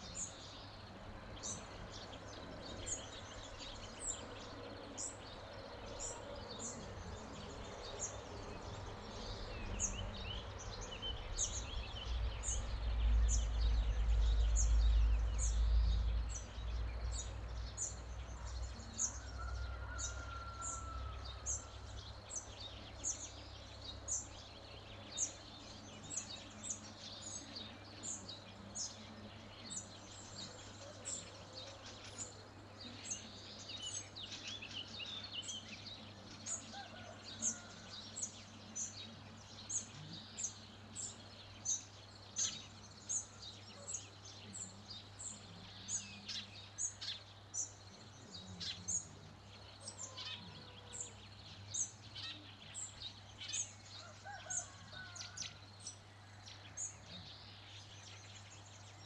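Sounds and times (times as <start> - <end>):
birds warbling: 26.0 - 59.0.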